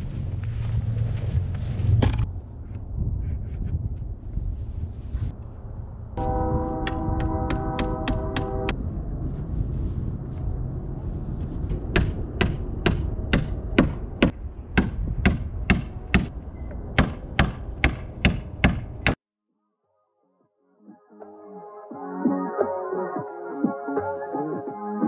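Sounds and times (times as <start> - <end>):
low background rumble: 0.0 - 19.1
hammer striking nails into wood: 11.9 - 16.3, 17.0 - 19.2.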